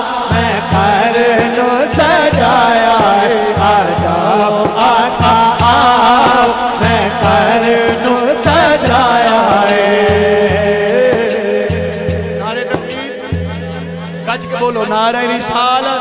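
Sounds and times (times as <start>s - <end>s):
man singing: 0.0s - 16.0s
low drum beat: 0.3s - 15.3s.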